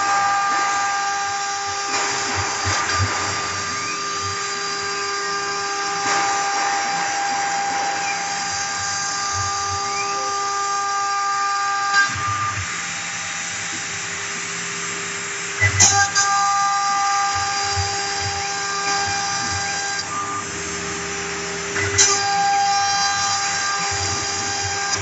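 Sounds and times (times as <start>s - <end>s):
router spindle whine cutting wood: 0.0s - 25.0s.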